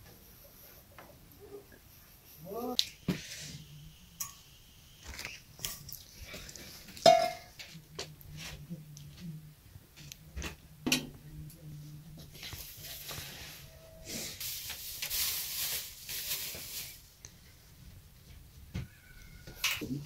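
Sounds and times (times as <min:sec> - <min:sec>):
bowls and utensils clinking: 0:06.9 - 0:07.6.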